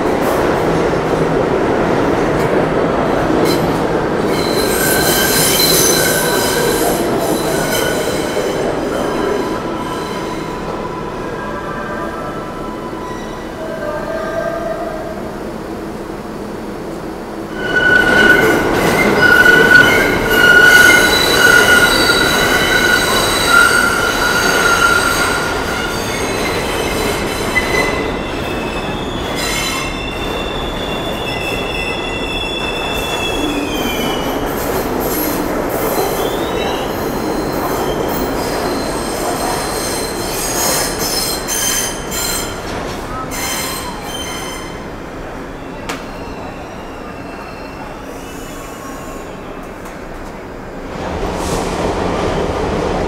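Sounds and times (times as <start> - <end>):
train rumbling: 0.0 - 47.2, 48.9 - 53.0
train wheels squealing: 4.3 - 14.4, 17.5 - 44.9, 45.5 - 49.8.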